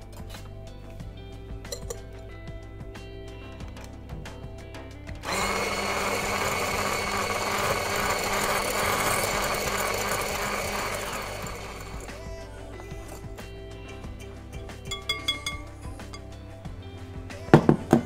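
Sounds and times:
stick blender whisking: 0:05.3 - 0:13.3.

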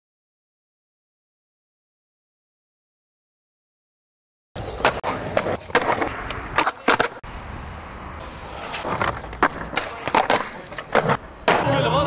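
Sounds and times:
skateboard clacking on ground: 0:04.6 - 0:07.3, 0:08.2 - 0:12.0
skateboard wheels rolling: 0:04.6 - 0:12.0.

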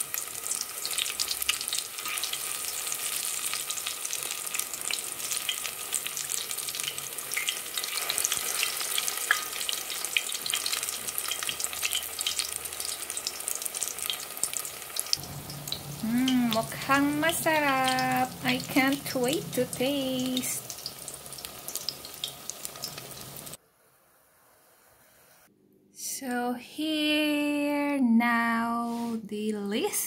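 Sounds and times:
fritters sizzling in hot oil: 0:00.0 - 0:23.6.

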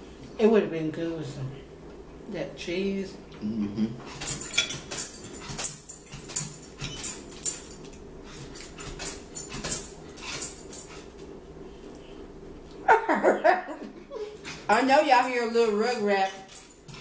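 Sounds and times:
forks scraping plates: 0:04.2 - 0:07.7.

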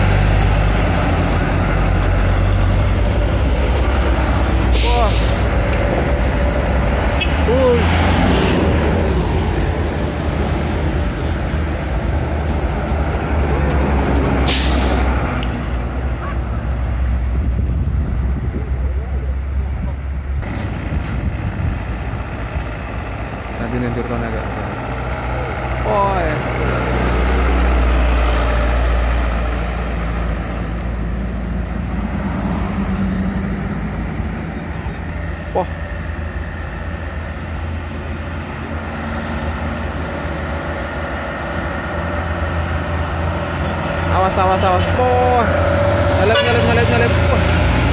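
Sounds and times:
truck engines rumbling: 0:00.0 - 0:47.9
sharp hiss of air: 0:04.8 - 0:05.5, 0:14.4 - 0:15.2
wind on microphone: 0:17.1 - 0:19.1.

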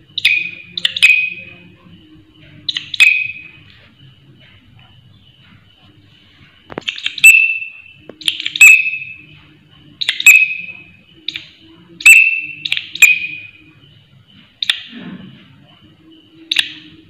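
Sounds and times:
katydid shrill chirps: 0:12.0 - 0:13.6.

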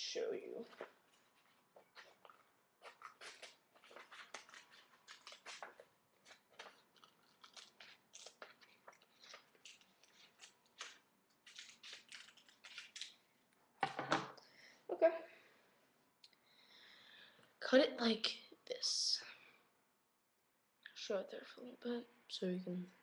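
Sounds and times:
paper rustling: 0:00.7 - 0:13.2
scissors cutting paper: 0:02.9 - 0:08.8, 0:09.4 - 0:13.1.

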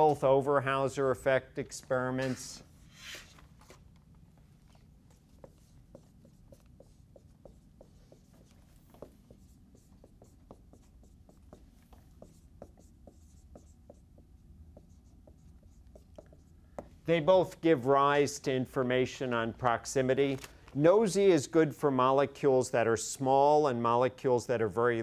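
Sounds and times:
low room hum: 0:00.0 - 0:25.0
marker squeaking on whiteboard: 0:04.8 - 0:16.9.

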